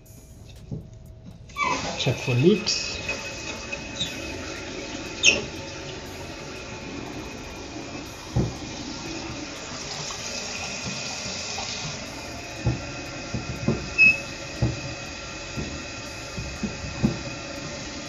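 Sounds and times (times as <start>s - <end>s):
toilet tank refilling water rush: 1.5s - 18.0s.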